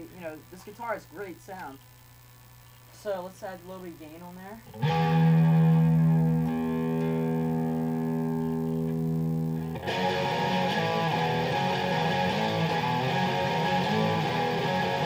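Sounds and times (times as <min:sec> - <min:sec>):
electric guitar strumming chords: 0:04.7 - 0:15.0.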